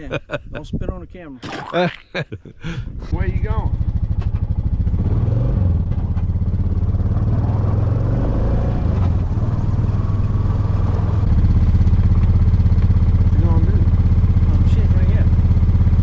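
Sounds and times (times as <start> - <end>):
atv engine idling: 3.1 - 5.0, 10.9 - 16.0.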